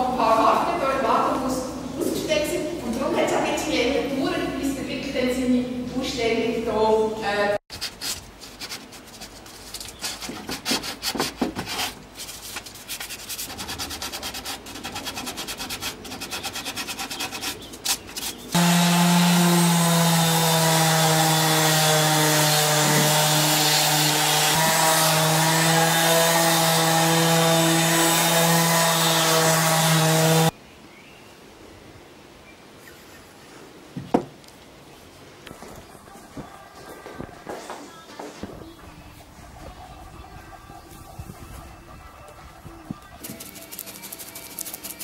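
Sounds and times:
orbital sander on wood: 18.5 - 30.5
hand rubbing on wooden board: 43.2 - 45.0.

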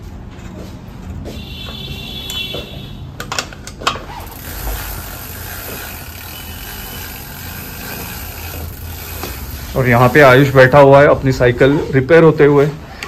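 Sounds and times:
steady shop noise: 0.0 - 13.0
metal clicks of bicycle pedal: 2.2 - 10.4.

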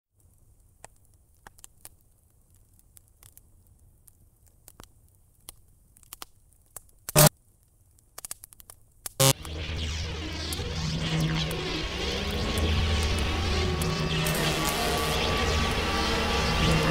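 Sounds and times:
electrical crackles and clicks: 0.1 - 16.9
loud electric zap: 9.2 - 16.9
low hum: 9.2 - 16.9.

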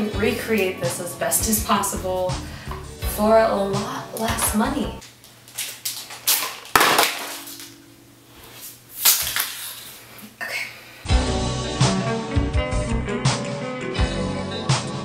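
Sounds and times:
music: 0.0 - 5.0, 11.0 - 15.0
paper packaging rustling: 5.2 - 7.8, 8.5 - 10.1.

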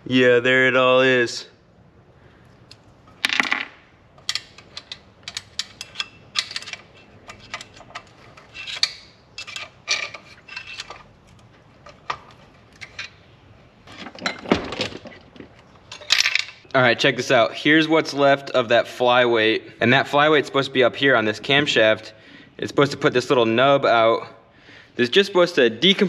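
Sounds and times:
metal rod clicking and scraping: 4.2 - 13.2.

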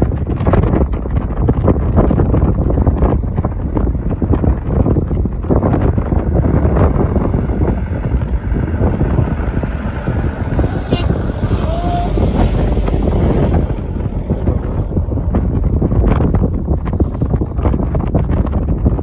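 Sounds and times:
diesel truck engine driving past: 5.9 - 16.4.

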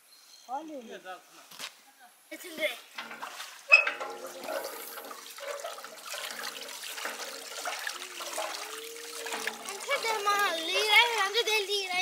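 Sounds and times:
water trickling and splashing: 2.4 - 12.0.

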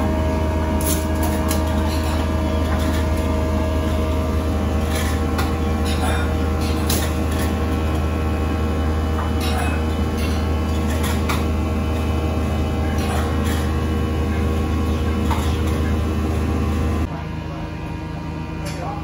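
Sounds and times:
kitchen equipment humming: 0.0 - 19.0
utensils and dishes clinking: 0.2 - 8.2, 8.8 - 11.6, 12.8 - 16.0.

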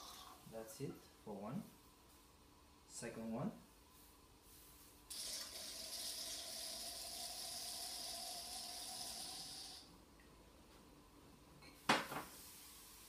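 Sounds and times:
wine pouring through aerator: 5.1 - 9.9.

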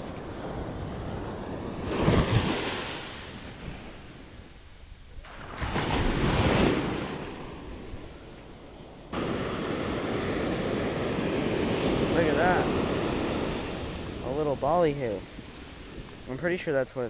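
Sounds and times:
small waves breaking on beach: 0.0 - 4.6, 5.2 - 17.0
wind on microphone: 0.0 - 16.6.

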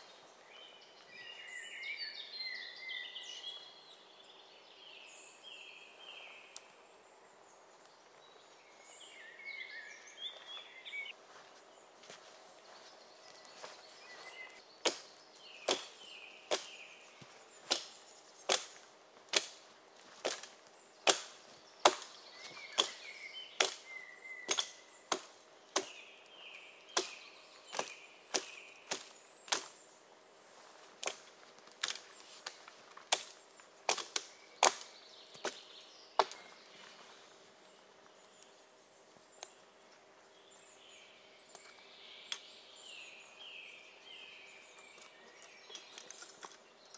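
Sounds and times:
birds chirping: 0.0 - 46.9
axe chopping wood: 14.8 - 16.8, 17.6 - 19.6, 20.2 - 23.0, 23.6 - 26.0, 26.9 - 29.8, 33.1 - 35.6, 36.2 - 36.5.

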